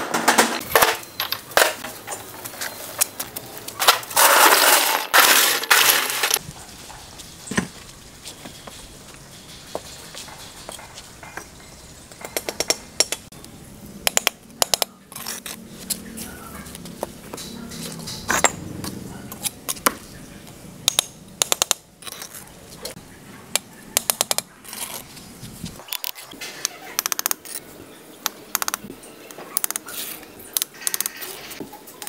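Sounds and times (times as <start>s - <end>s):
sharp clicks and taps: 14.0s - 14.9s, 20.8s - 21.8s.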